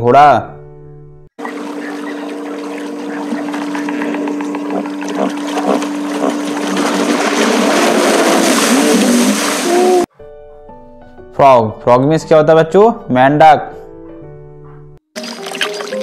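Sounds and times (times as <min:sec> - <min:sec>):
hippo calls: 0:01.4 - 0:06.8, 0:07.6 - 0:10.1
hippos splashing in water: 0:01.4 - 0:10.1.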